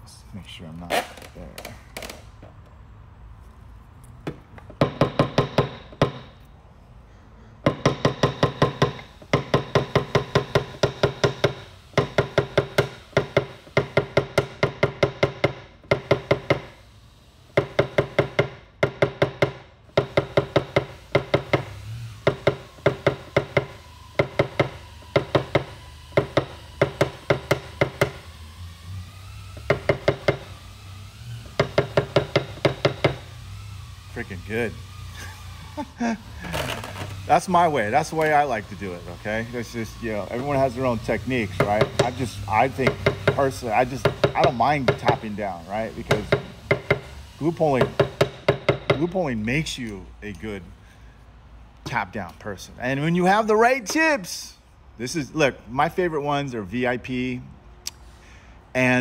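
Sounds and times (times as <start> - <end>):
hammer tapping on steel panel: 4.3 - 6.3, 7.6 - 16.7, 17.6 - 28.2, 29.6 - 30.5, 31.6 - 33.2, 41.6 - 45.2, 46.1 - 47.1, 47.8 - 49.1.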